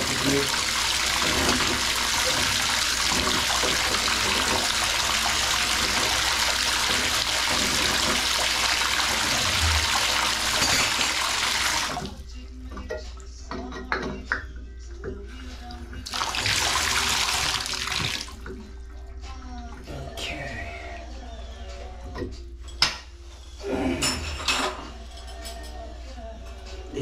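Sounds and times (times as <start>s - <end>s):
water running into bathtub: 0.0s - 12.2s, 16.0s - 18.5s.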